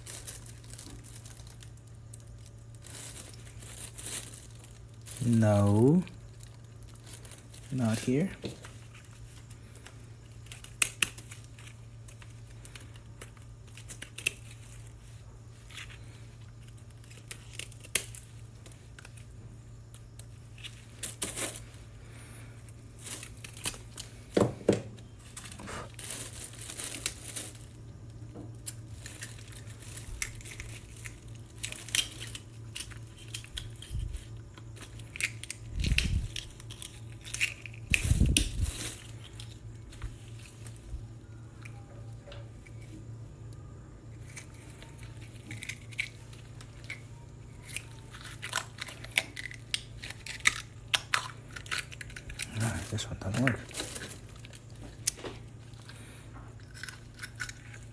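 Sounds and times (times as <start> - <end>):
steady low hum: 0.0 - 57.9
plastic bin liner crinkling: 24.8 - 27.9
knife shucking oyster shells: 30.1 - 34.2, 47.6 - 52.9, 56.6 - 57.9.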